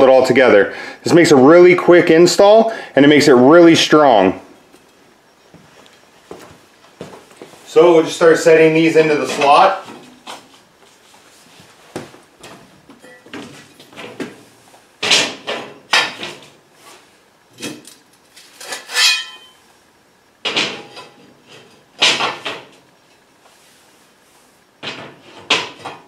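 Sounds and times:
steel slats clanking on metal table: 18.6 - 19.5.

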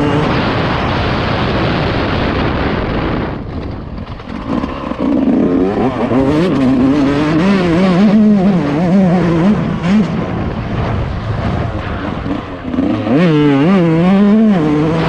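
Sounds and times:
motocross engine revving: 0.0 - 0.6, 4.2 - 15.0.

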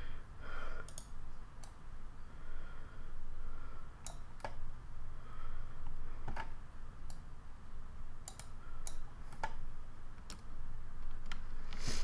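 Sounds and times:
computer mouse clicking: 0.8 - 1.8, 4.0 - 4.6, 6.2 - 7.2, 8.2 - 9.6, 10.2 - 11.8.

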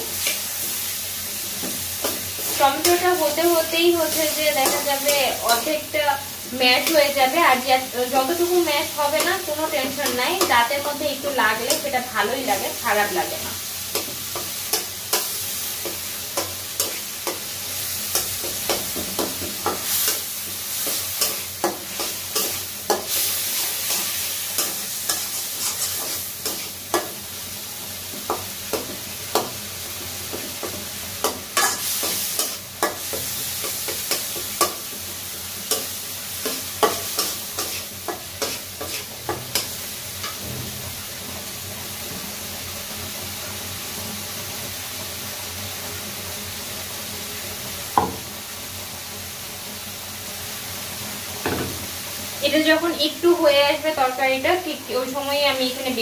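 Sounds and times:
oil sizzling: 0.0 - 56.0
metal spatula scraping a wok: 13.9 - 27.3, 30.3 - 35.0, 35.6 - 40.5.

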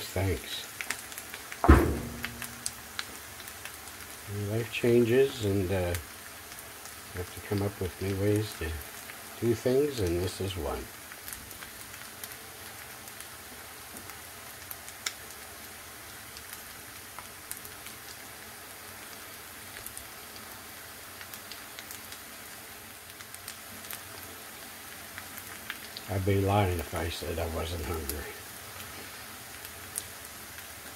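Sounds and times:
food sizzling in a frying pan: 0.0 - 30.9
fat popping and crackling: 0.2 - 4.1.

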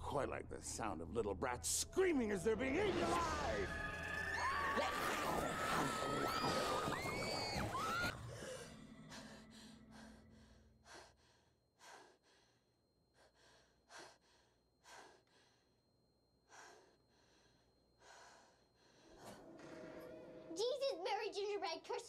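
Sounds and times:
loud high-pitched screams: 3.6 - 8.1
young woman panting: 8.3 - 15.8, 16.4 - 19.4.

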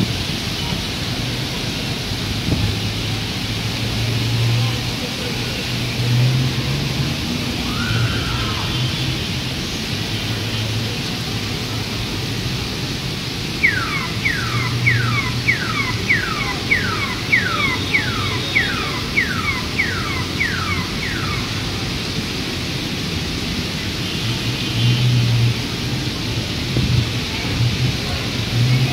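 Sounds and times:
rain falling on street: 0.0 - 28.9
high falling chirp: 13.6 - 21.6.

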